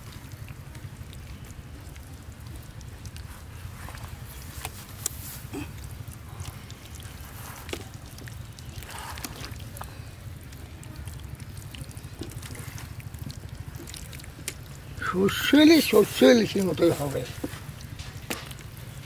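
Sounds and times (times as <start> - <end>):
steady low rumble: 0.0 - 15.2
hand squelching wet paste: 0.0 - 19.0.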